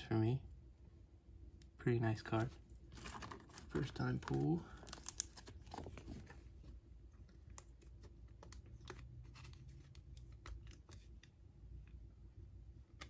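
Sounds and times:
plastic sleeve rustling: 2.3 - 11.2.

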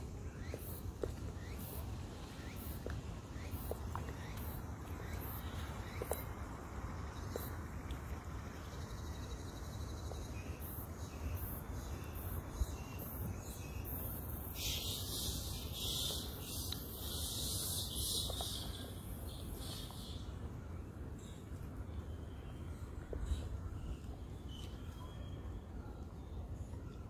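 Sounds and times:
insects buzzing hiss: 0.0 - 20.3.

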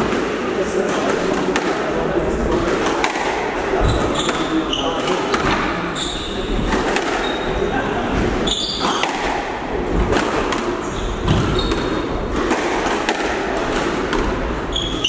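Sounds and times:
steady background noise: 0.0 - 15.0
squash ball smacks: 2.5 - 4.6, 6.7 - 7.4, 8.8 - 14.5.

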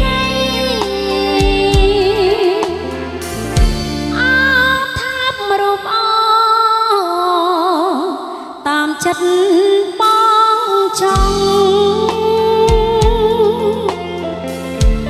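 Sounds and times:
keyboard accompaniment: 0.0 - 5.9, 11.0 - 15.0
woman singing with vibrato: 0.0 - 15.0.

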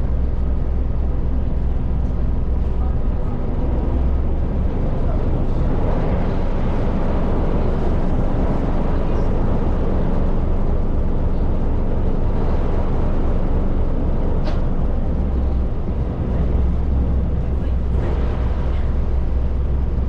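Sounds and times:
ferry engines rumbling: 0.0 - 20.0.

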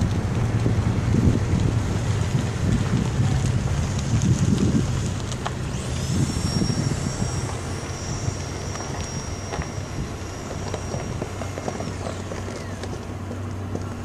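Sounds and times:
wind on microphone: 0.0 - 12.8
car engine and tyre rumble: 0.0 - 14.0
thin high whine: 3.2 - 13.2.

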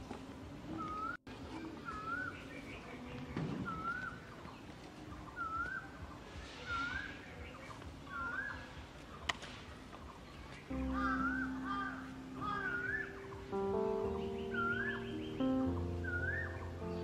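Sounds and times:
bird whistling call: 0.8 - 1.2, 1.8 - 2.9, 3.6 - 4.3, 5.3 - 6.0, 6.6 - 8.7, 11.0 - 13.4, 14.4 - 17.0.

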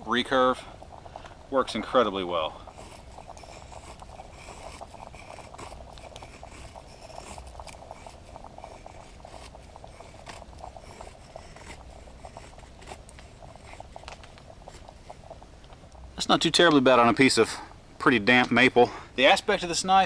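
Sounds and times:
knife scraping wood: 2.8 - 13.8.

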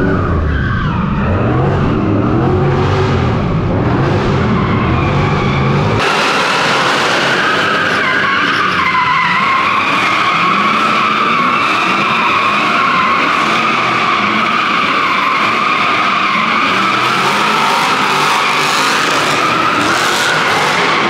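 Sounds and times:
car engine noise: 0.0 - 21.0
tyres squealing: 7.0 - 21.0.

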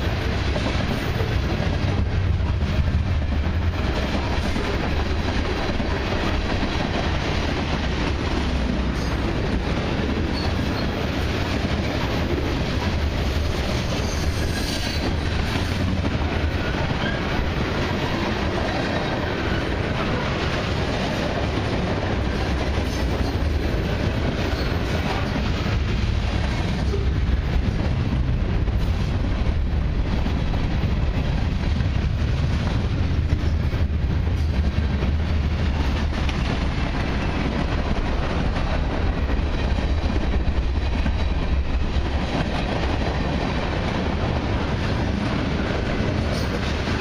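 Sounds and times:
freight train rolling past: 0.0 - 47.0.

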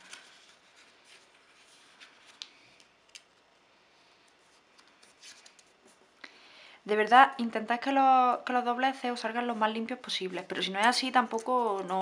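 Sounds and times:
paper note rustling and crinkling: 0.0 - 3.4, 4.3 - 6.0.

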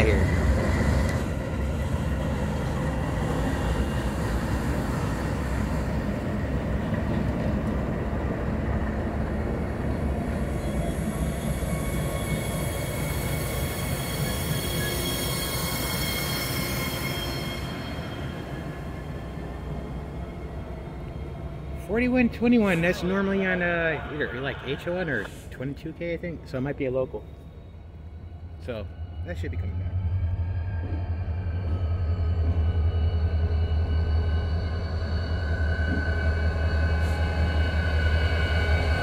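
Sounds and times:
diesel locomotive engines rumbling: 0.0 - 39.0
high wheel squeal: 10.5 - 19.0.

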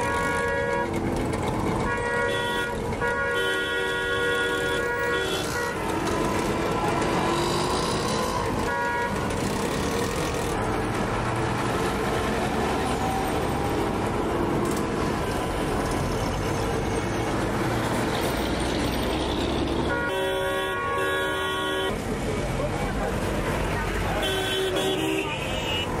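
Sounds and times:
street traffic rumble: 0.0 - 26.0
vehicle horn toot: 1.8 - 5.9, 19.9 - 22.0, 24.2 - 26.0.

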